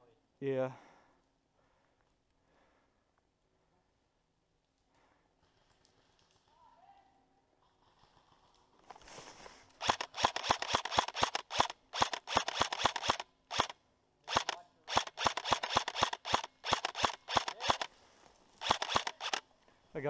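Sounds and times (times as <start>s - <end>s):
rustle of dry leaves: 8.9s - 9.8s
airsoft rifle firing bursts: 9.8s - 17.9s, 18.6s - 19.4s.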